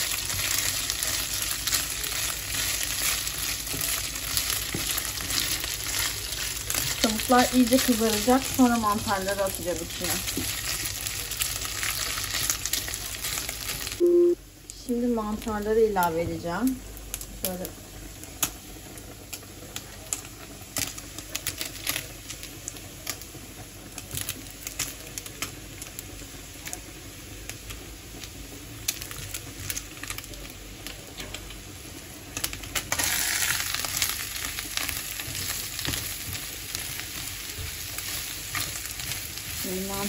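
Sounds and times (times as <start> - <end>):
wooden spatula stirring pan: 0.0 - 13.9, 34.3 - 40.0
food sizzling in frying pan: 0.0 - 40.0.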